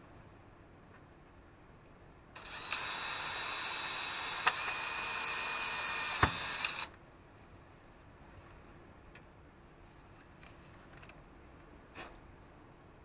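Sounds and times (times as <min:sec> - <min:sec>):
cordless drill drilling: 0:02.4 - 0:06.9
drill clicks: 0:02.4 - 0:07.0.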